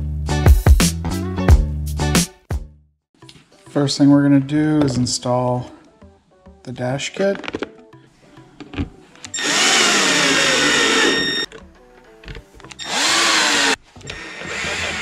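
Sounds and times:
power drill driving screws: 0:09.3 - 0:11.5, 0:12.8 - 0:15.0.

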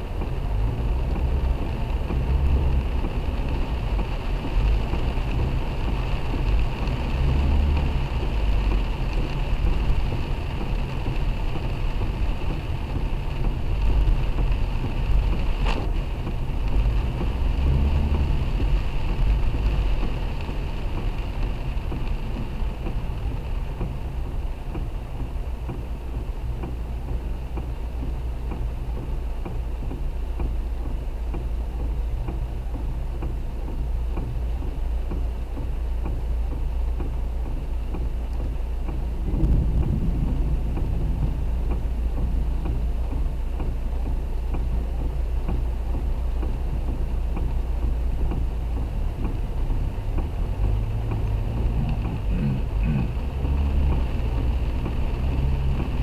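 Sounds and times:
car driving on wet road: 0:00.0 - 0:56.0
heavy rain hiss: 0:00.0 - 0:56.0.

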